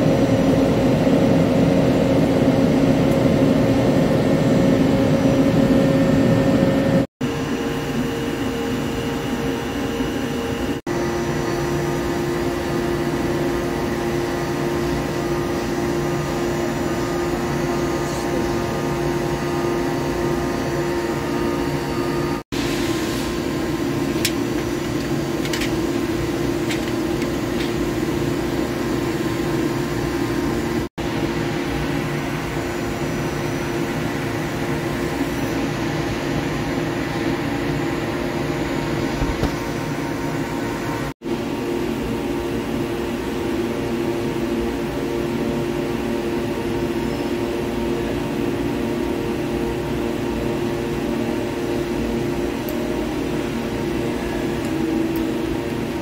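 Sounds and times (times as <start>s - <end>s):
machinery droning: 0.0s - 41.1s, 44.2s - 56.0s.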